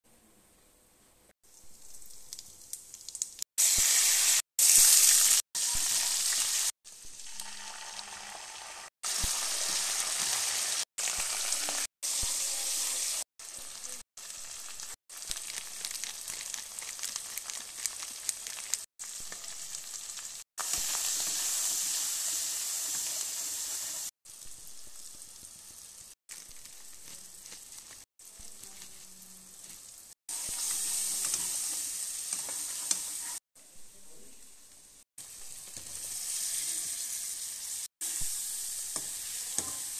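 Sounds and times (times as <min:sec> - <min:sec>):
food sizzling in hot oil: 0:01.4 - 0:33.4, 0:34.9 - 0:39.9
spatula stirring in a pan: 0:26.3 - 0:33.4, 0:38.1 - 0:39.9.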